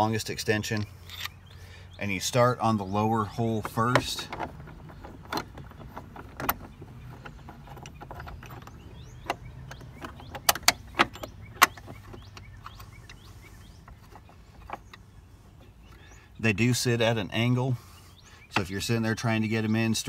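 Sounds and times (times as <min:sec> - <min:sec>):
metallic clicks and knocks: 0:03.4 - 0:15.7.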